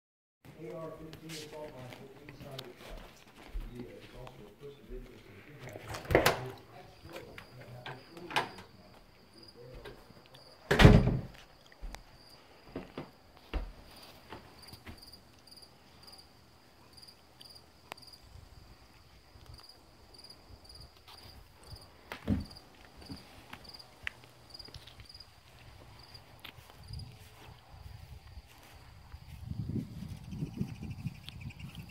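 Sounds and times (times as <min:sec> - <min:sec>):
crickets chirping: 0:00.6 - 0:31.9
door closing thump: 0:06.0 - 0:06.5, 0:10.7 - 0:11.4, 0:22.2 - 0:22.6.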